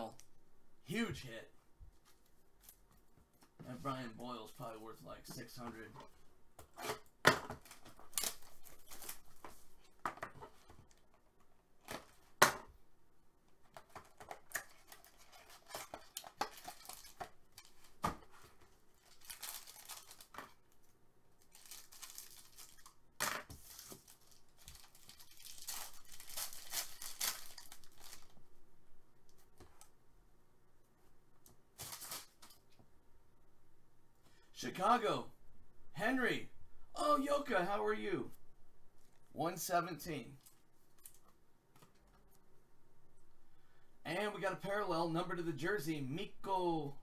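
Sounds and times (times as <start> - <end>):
foil packs tearing and crinkling: 7.6 - 9.5, 14.4 - 17.8, 19.0 - 20.6, 21.5 - 22.9, 23.5 - 28.3.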